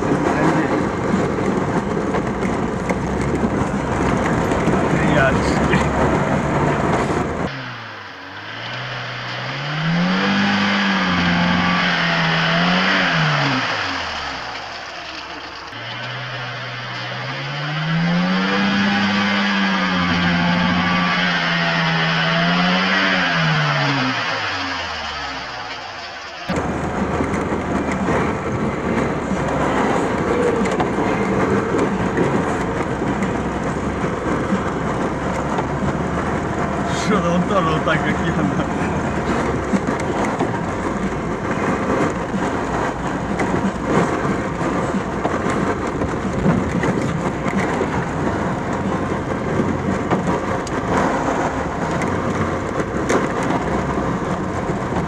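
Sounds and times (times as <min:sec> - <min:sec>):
car engine revving under load: 0:00.0 - 0:55.0
road and body noise: 0:00.0 - 0:55.0
water splashing around wheels: 0:00.0 - 0:55.0.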